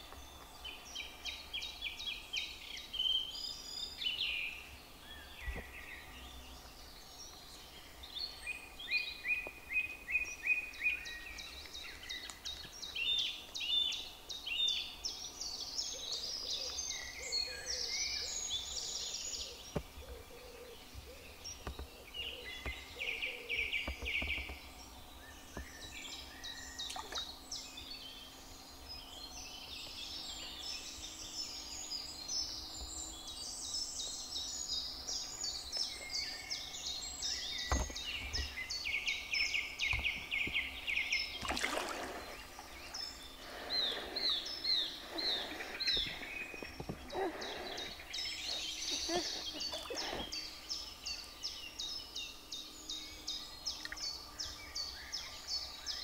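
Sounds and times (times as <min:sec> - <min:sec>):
songbirds singing: 0:00.0 - 0:56.0.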